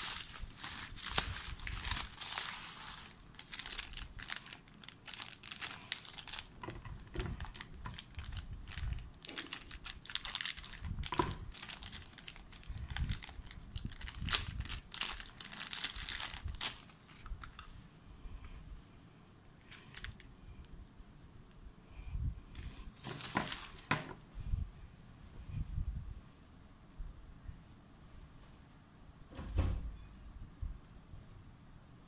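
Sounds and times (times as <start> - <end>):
plastic packaging crinkling: 0.0 - 17.7, 19.6 - 20.4, 22.5 - 24.2.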